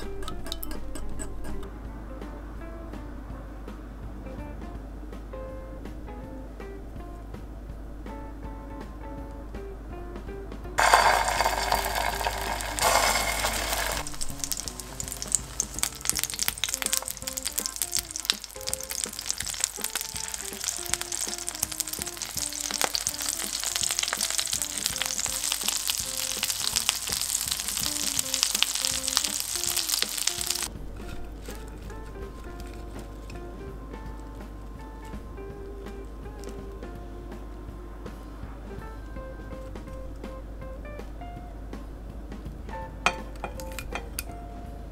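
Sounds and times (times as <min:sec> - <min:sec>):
food sizzling in hot oil: 0:10.8 - 0:30.7.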